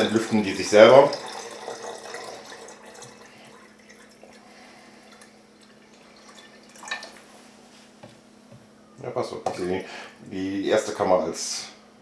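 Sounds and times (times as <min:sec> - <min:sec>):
liquid trickling and dripping: 0:00.0 - 0:07.3
faint steady hum: 0:00.0 - 0:12.0.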